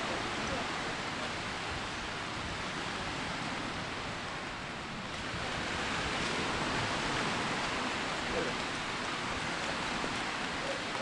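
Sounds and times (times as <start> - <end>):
beach surf rushing: 0.0 - 11.0.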